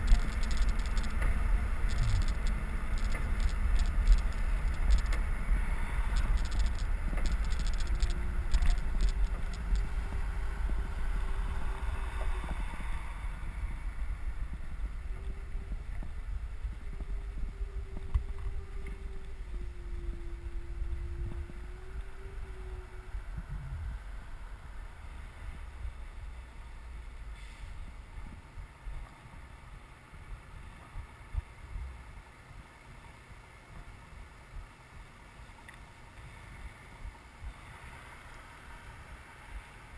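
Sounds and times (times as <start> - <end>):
wind rushing over microphone: 0.0 - 26.6
bicycle road noise rumble: 0.0 - 39.9
faint steady hum: 0.0 - 39.9.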